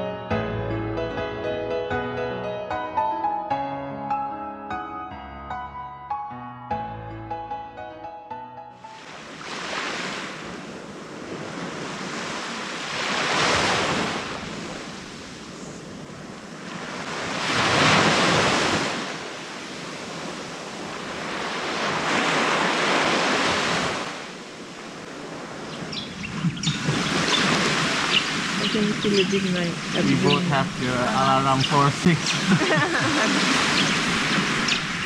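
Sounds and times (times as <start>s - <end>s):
small waves breaking on beach: 8.9s - 31.2s, 32.3s - 35.0s.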